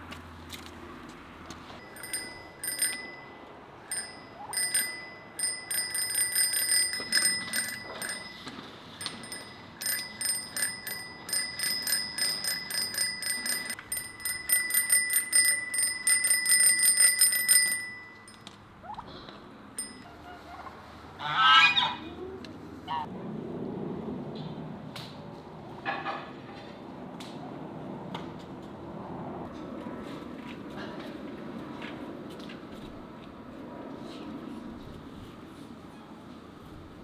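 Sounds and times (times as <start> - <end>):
bicycle bell ringing: 1.8 - 18.6, 19.8 - 20.3.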